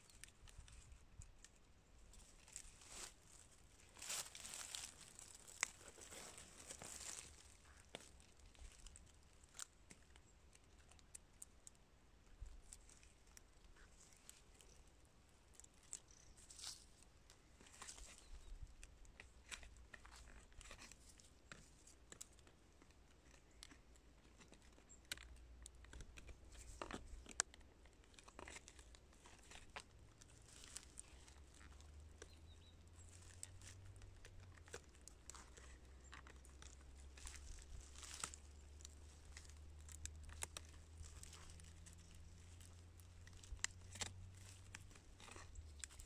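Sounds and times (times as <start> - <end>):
blade scraping in soil: 2.2 - 8.9.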